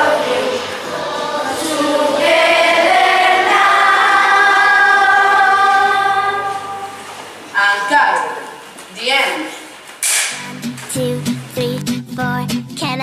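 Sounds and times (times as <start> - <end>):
children singing in unison: 0.0 - 7.2.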